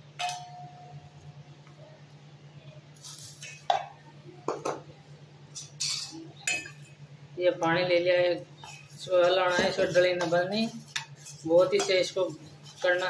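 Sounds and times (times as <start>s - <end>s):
steady low hum: 0.0s - 13.0s
spoon tapping and scraping steel: 0.2s - 0.6s, 5.6s - 7.0s, 8.6s - 13.0s
steel bowl ringing: 0.2s - 1.0s.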